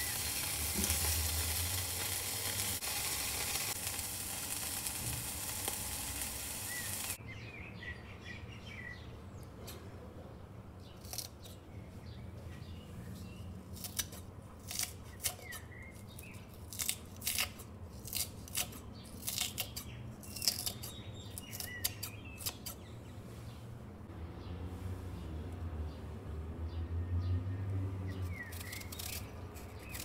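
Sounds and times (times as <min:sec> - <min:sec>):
knife cutting crunchy lettuce: 0:11.0 - 0:11.6, 0:13.6 - 0:22.9, 0:28.2 - 0:30.0.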